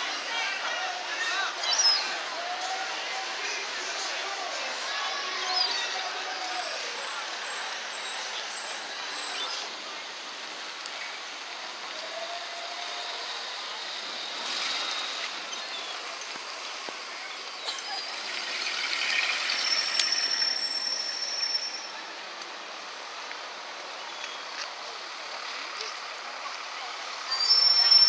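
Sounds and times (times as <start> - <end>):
passers-by: 0.0 - 28.0
traffic: 0.0 - 28.0.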